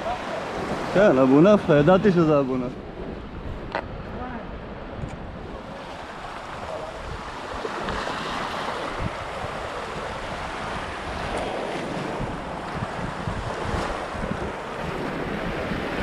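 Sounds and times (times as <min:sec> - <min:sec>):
wind rumbling on microphone: 0:00.0 - 0:16.0
waves washing over rocks: 0:05.5 - 0:16.0.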